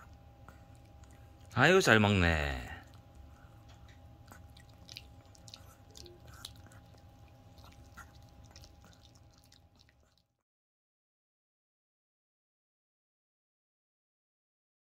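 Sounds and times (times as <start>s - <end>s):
dog chewing crunchy treat: 2.8s - 10.3s.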